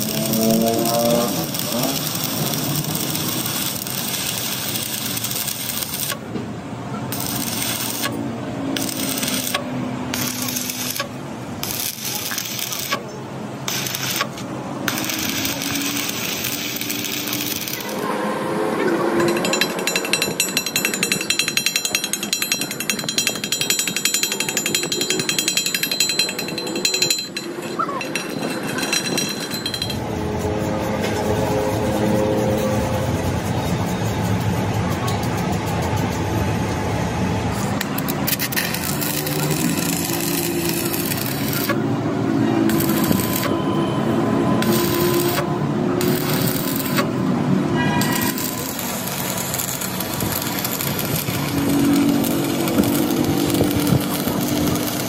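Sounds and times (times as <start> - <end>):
workshop power tool: 0.0 - 33.8, 36.0 - 55.0
fast hammering rattle: 48.0 - 55.0.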